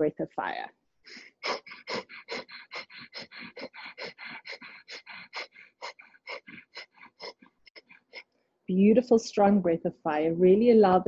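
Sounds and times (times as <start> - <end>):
rapid rhythmic nose breathing: 1.0 - 8.4.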